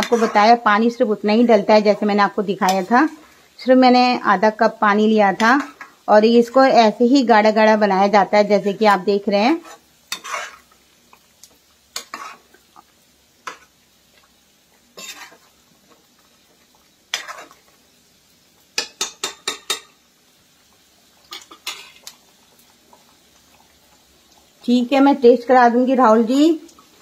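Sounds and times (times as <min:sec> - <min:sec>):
spatula scraping steel pan: 0:00.0 - 0:00.6, 0:09.6 - 0:10.7, 0:12.0 - 0:12.5, 0:15.0 - 0:15.4, 0:17.1 - 0:17.6.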